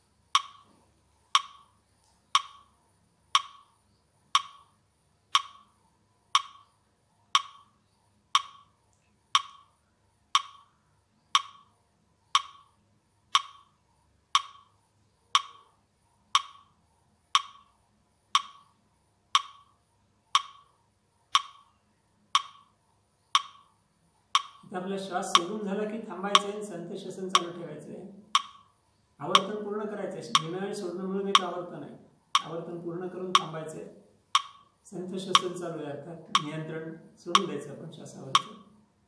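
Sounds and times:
metronome clicking: 0.3 - 0.7, 1.3 - 1.7, 2.3 - 2.7, 3.3 - 3.7, 4.3 - 4.7, 5.3 - 5.7, 6.3 - 6.7, 7.3 - 7.7, 8.3 - 8.7, 9.3 - 9.7, 10.3 - 10.7, 11.3 - 11.7, 12.3 - 12.7, 13.3 - 15.7, 16.3 - 16.7, 17.3 - 17.7, 18.3 - 18.7, 19.3 - 19.7, 20.3 - 20.7, 21.3 - 22.7, 23.3 - 23.7, 24.3 - 24.7, 25.3 - 25.6, 26.3 - 26.6, 27.3 - 27.7, 28.3 - 28.7, 29.3 - 29.6, 30.3 - 31.7, 32.3 - 38.8.

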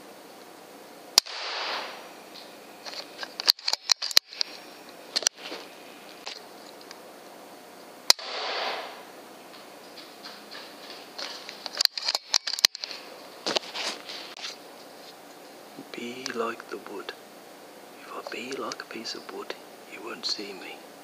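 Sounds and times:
air rifle shots: 1.2 - 2.1, 8.1 - 9.1.

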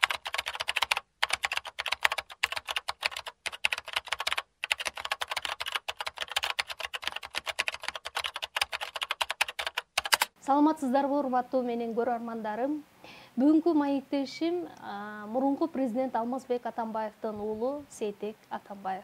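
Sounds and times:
fast keyboard typing: 0.0 - 10.4.

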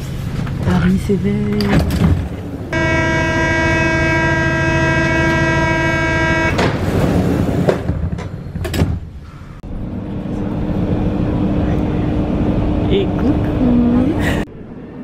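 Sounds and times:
sliding doors closing with clunk: 1.5 - 2.8, 6.5 - 9.4
door warning buzzer: 2.7 - 6.6.

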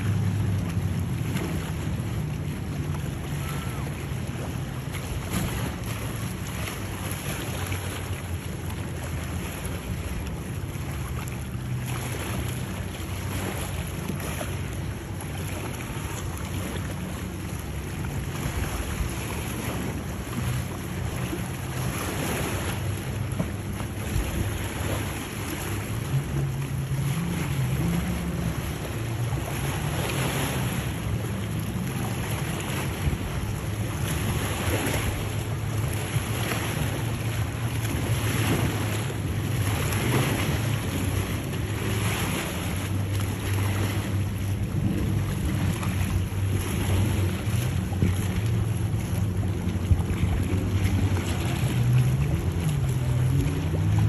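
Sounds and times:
choppy water washing: 0.0 - 54.0
outboard engines droning: 0.0 - 54.0
wind buffeting microphone: 0.0 - 54.0.

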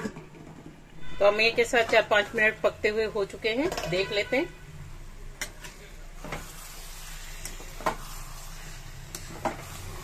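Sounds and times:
curry sizzling in a pan: 1.9 - 10.0
spatula scraping a pan: 5.4 - 10.0.

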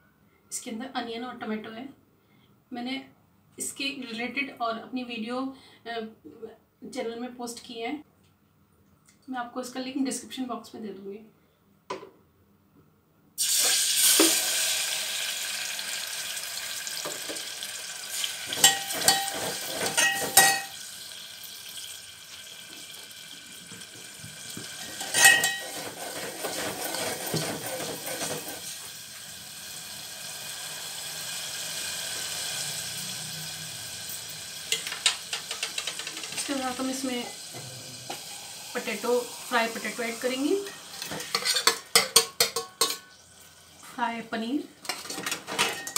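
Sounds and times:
ladle clinking against pot: 18.6 - 20.7, 25.0 - 25.9, 41.0 - 43.1.

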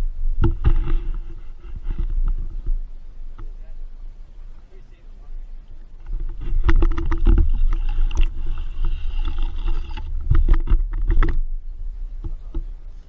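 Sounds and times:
wind on microphone: 0.0 - 13.0
camera handling rumble: 0.3 - 3.6, 5.9 - 11.6
reel clicks and knocks: 6.0 - 11.5.

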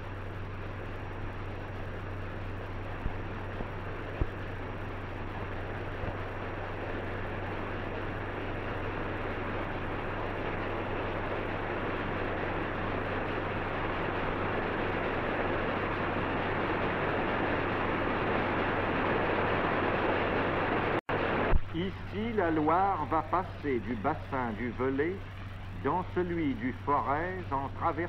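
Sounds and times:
film soundtrack hiss: 0.0 - 28.0
low hum: 0.0 - 28.0.

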